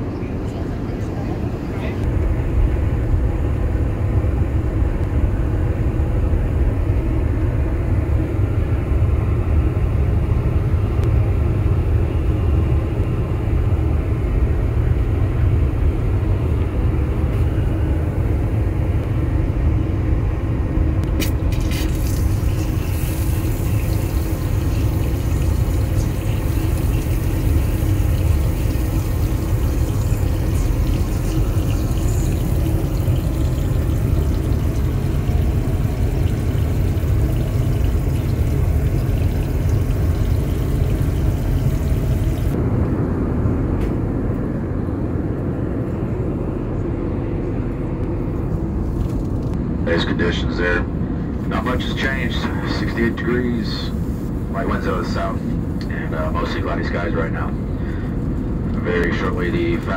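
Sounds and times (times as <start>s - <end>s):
airliner cabin rumble: 0.0s - 59.9s
water running into steel basin: 21.1s - 42.6s.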